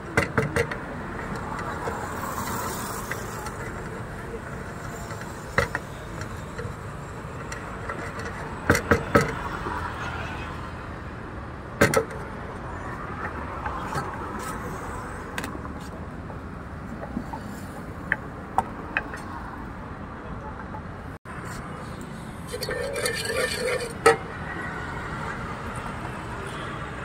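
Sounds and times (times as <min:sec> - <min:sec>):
street traffic: 0:00.0 - 0:27.0.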